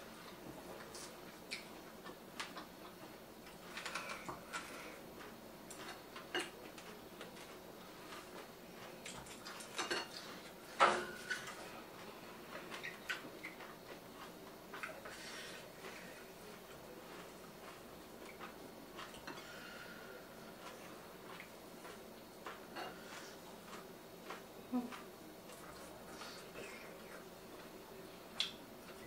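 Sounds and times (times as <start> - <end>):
chewing and lip smacking: 0.8 - 3.0, 11.3 - 15.1.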